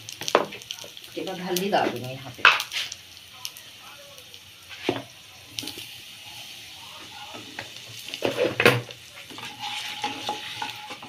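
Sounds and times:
spices sizzling in hot oil: 0.0s - 11.0s
wooden spatula scraping pan: 8.2s - 11.0s.

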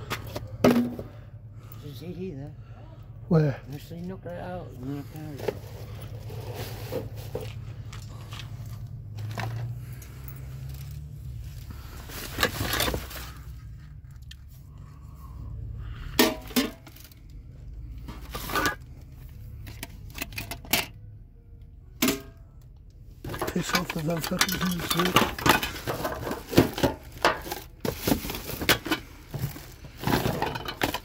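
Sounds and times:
knocks and clinks in metal bin: 0.1s - 1.2s, 16.2s - 17.0s, 22.0s - 22.4s, 23.3s - 31.0s
rummaging through rubbish bags: 4.8s - 14.0s, 23.2s - 31.0s.

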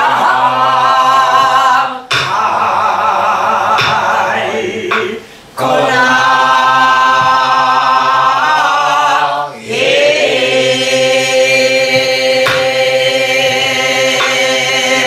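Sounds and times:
folk singing in held notes: 0.0s - 15.0s
barrel drum strokes: 11.7s - 15.0s.

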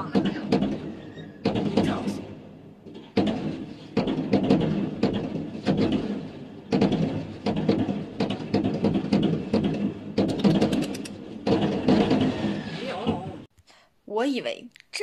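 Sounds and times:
fireworks bursting: 3.0s - 13.5s.

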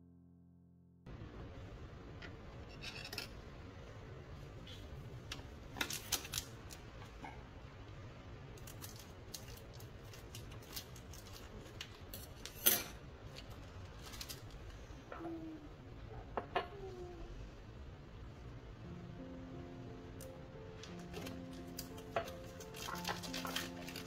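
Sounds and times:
scissors snipping plastic packet: 5.8s - 6.8s, 8.6s - 12.8s, 20.8s - 24.0s.

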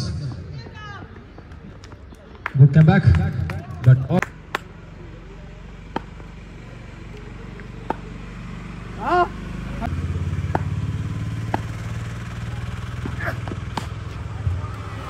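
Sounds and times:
engine running with low hum: 3.0s - 15.0s
person shouting: 8.9s - 9.4s.

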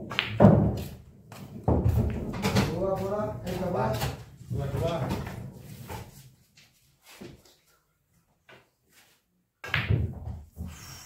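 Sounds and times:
billiard balls clacking: 0.0s - 0.9s.

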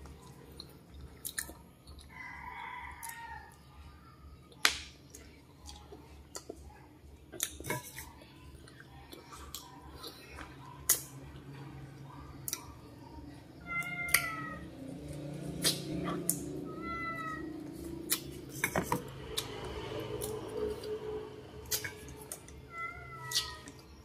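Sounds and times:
person eating berries: 0.4s - 2.1s
cat meowing: 13.6s - 14.6s, 16.6s - 17.5s, 22.7s - 23.7s
lip smacks: 15.5s - 16.4s, 21.6s - 22.6s.

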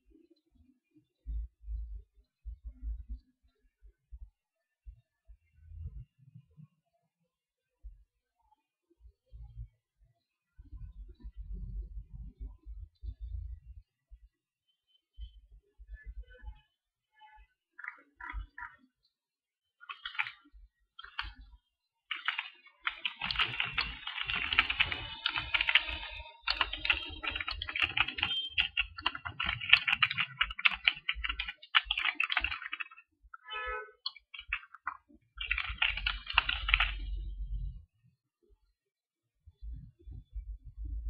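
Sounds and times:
computer keyboard typing: 19.8s - 21.5s, 22.1s - 33.1s, 34.0s - 37.2s.

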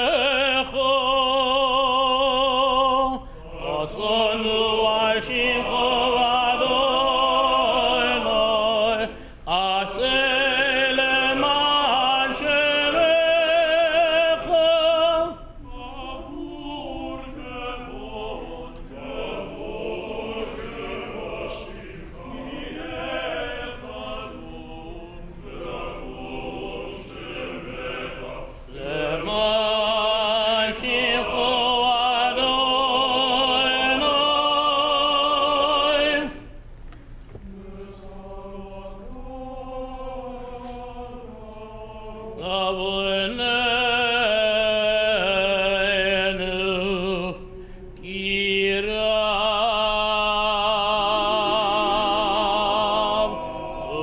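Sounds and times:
man singing operatic vibrato: 0.0s - 18.3s
choir singing: 0.0s - 36.5s, 37.4s - 54.0s.

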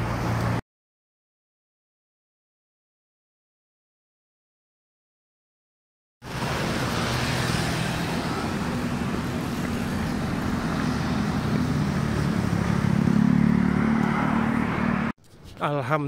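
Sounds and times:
traffic noise: 0.0s - 0.6s, 6.2s - 16.0s
motor scooter engines passing: 6.3s - 15.2s.

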